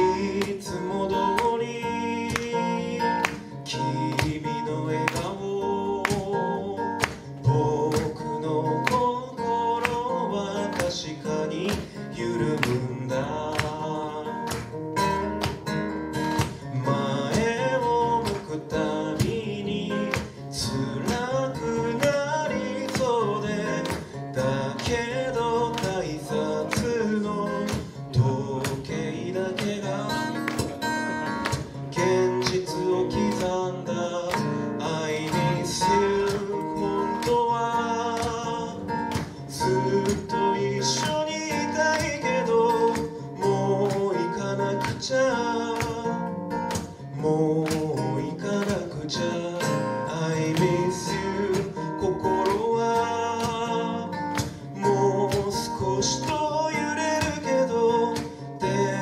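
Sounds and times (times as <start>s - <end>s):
man singing: 0.0s - 14.7s, 16.4s - 59.0s
acoustic guitar strumming: 0.0s - 59.0s.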